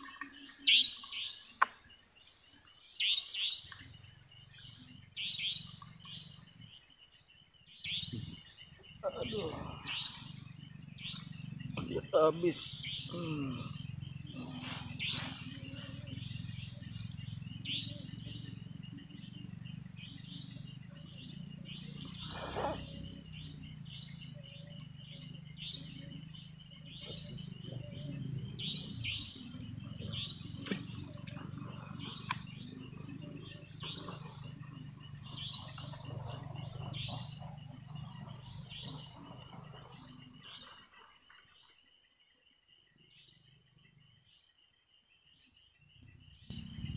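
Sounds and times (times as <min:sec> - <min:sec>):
birds chirping: 0:00.0 - 0:41.8, 0:42.5 - 0:46.9
insects trilling: 0:00.0 - 0:46.9
low steady hum: 0:07.8 - 0:40.7.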